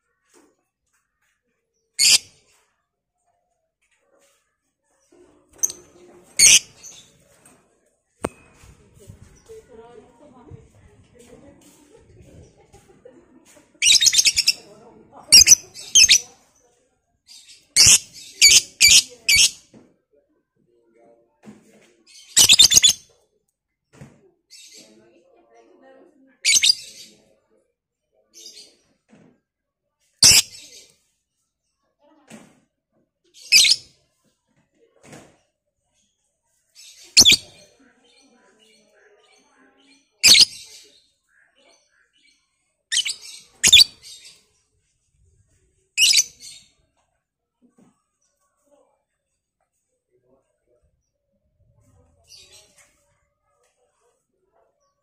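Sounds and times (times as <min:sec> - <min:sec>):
lovebird shrill calls: 0:02.0 - 0:02.2, 0:06.4 - 0:06.7, 0:22.4 - 0:23.0, 0:40.2 - 0:40.6, 0:42.9 - 0:43.9, 0:46.0 - 0:46.3
lovebird shrill chirps: 0:02.0 - 0:02.2, 0:06.4 - 0:06.9, 0:13.8 - 0:14.6, 0:15.3 - 0:16.2, 0:22.4 - 0:23.0, 0:33.5 - 0:33.8, 0:37.2 - 0:37.5, 0:40.2 - 0:40.7, 0:42.9 - 0:44.3, 0:46.0 - 0:46.6.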